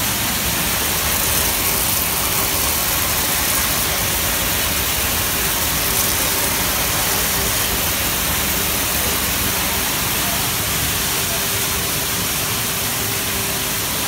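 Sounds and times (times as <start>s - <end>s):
sorting machine rushing: 0.0s - 13.6s
seeds pouring into a sack: 0.6s - 9.5s.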